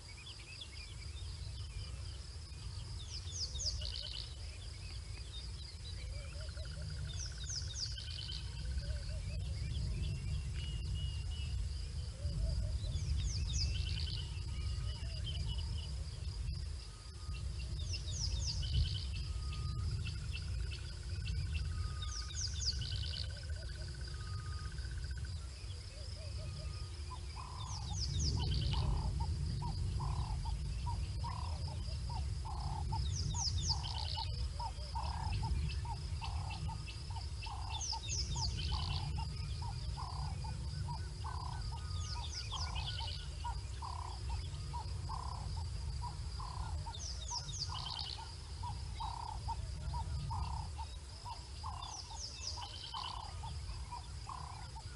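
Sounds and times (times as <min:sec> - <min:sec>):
high insect drone: 0:00.0 - 0:54.9
low rumble: 0:26.7 - 0:47.0.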